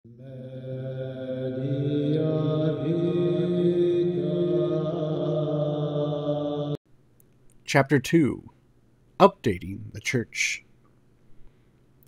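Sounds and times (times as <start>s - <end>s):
slow chanted music: 0.1s - 6.8s.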